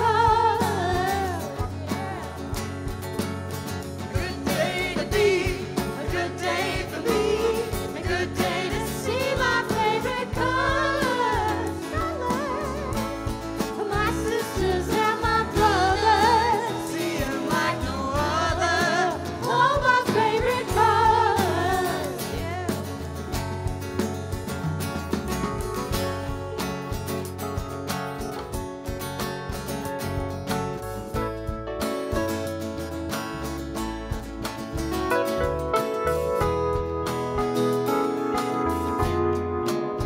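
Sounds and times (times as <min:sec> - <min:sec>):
live band playing: 0:00.0 - 0:40.0.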